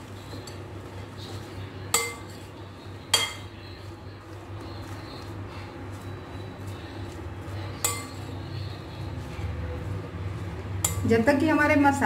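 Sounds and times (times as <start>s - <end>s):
steady low hum: 0.0s - 12.0s
spoon stirring in bowl: 0.1s - 11.2s
spoon clinking against glass bowl: 1.9s - 2.5s, 3.1s - 3.6s, 7.8s - 8.5s, 10.8s - 11.1s.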